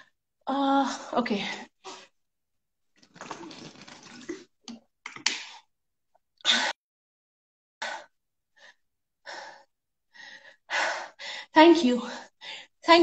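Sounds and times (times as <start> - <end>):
woman drinking from a bottle: 3.0 - 5.2.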